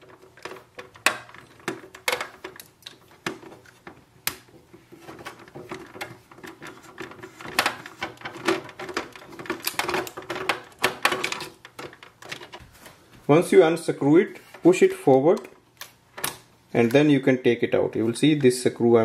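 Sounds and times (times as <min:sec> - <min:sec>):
small clicks and knocks of plastic: 0:00.0 - 0:12.9.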